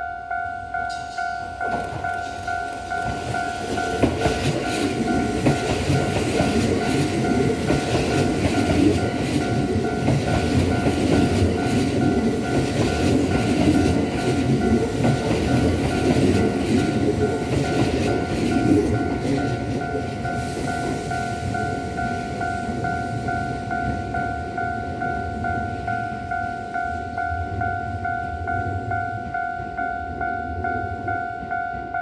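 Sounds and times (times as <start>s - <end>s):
electric train rumble: 0.0s - 32.0s
level crossing warning bell: 0.0s - 32.0s
wheels clacking over rail joints: 0.9s - 24.0s.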